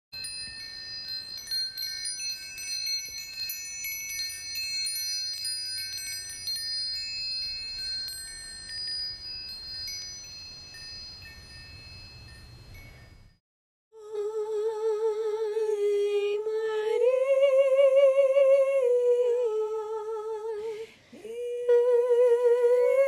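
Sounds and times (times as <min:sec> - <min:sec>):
wind chimes ringing: 0:00.2 - 0:13.4.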